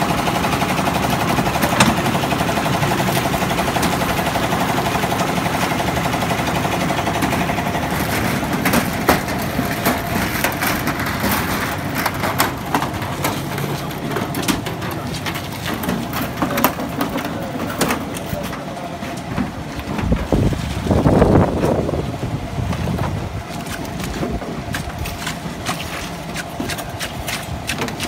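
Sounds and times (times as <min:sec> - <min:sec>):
construction machine chugging: 0:00.0 - 0:28.0
concrete cart knocks and clatters: 0:07.2 - 0:21.8.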